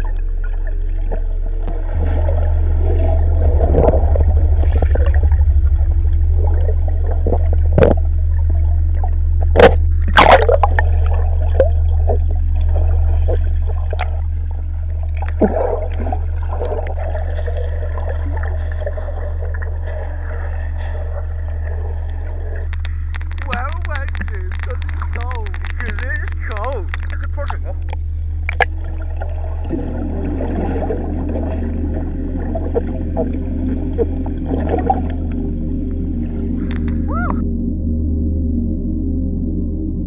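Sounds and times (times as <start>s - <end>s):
underwater bubbles and gurgling: 0.0s - 38.2s
low bass drone: 0.0s - 40.0s
sharp clicks: 22.6s - 28.7s.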